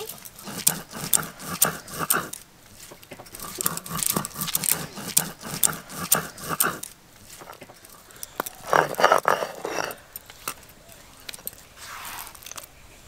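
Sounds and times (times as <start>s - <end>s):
stone roller scraping on grinding stone: 0.0s - 10.0s.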